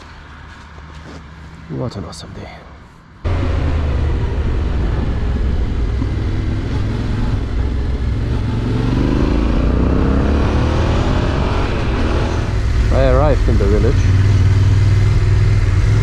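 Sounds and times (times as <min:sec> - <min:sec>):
road noise: 0:00.0 - 0:16.0
motorcycle engine running: 0:03.3 - 0:16.0.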